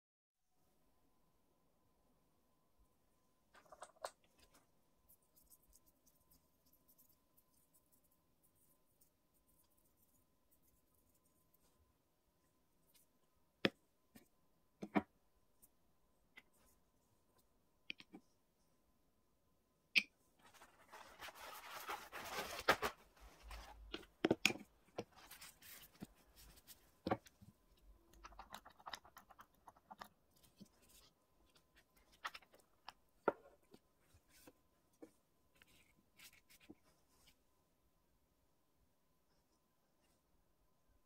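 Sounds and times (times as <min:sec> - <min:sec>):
rustling and scraping on table: 0:20.4 - 0:27.3.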